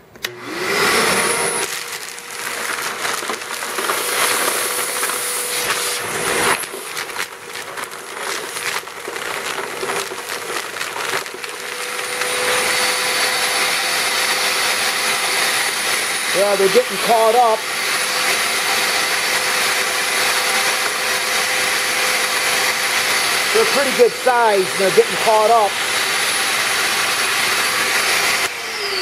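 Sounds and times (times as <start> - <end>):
shop vacuum motor whine: 0.0 - 29.0
gravel clattering through hose: 1.6 - 12.7.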